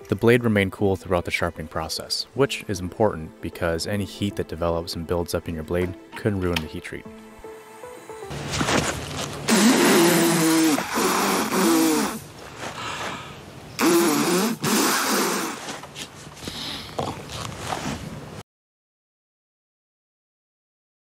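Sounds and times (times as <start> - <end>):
man spluttering through lips: 9.5 - 12.3, 13.8 - 15.7.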